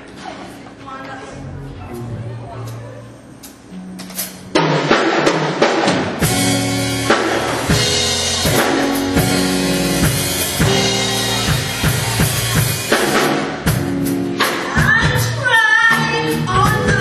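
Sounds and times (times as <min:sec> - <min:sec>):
drum kit beat: 0:03.4 - 0:17.0
band playing gospel song: 0:04.0 - 0:17.0.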